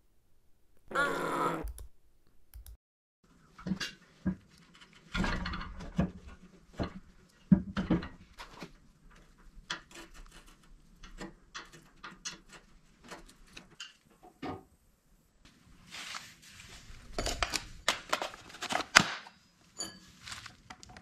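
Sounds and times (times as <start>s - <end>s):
screwdriver and washers scraping metal: 9.6s - 14.0s.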